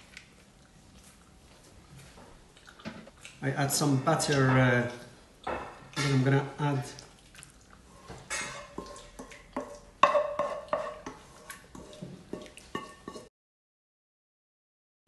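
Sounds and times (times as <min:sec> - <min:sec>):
wooden spoon knocking on frying pan: 0:09.6 - 0:11.0.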